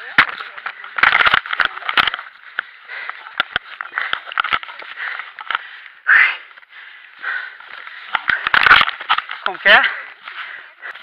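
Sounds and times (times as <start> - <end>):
rubbing and scraping on microphone: 7.8 - 11.0.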